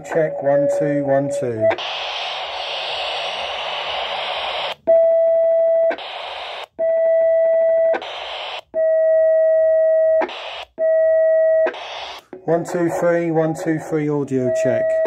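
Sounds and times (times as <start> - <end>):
radio beep tone: 0.0 - 4.8, 11.4 - 15.0
radio static hiss: 0.0 - 4.8, 5.9 - 6.8, 8.0 - 8.7, 10.2 - 10.8, 11.7 - 15.0.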